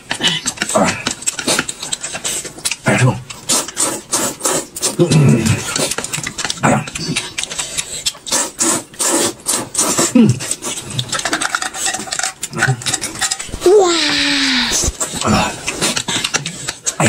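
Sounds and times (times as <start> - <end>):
noodles slurped and chewed: 0.0 - 17.0
wet mouth smacking: 0.2 - 17.0
person humming mm: 13.4 - 15.5.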